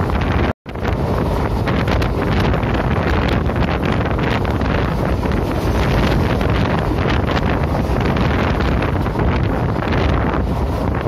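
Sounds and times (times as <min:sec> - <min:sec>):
train rumbling on track: 0:00.0 - 0:11.0
wind buffeting microphone: 0:00.0 - 0:11.0.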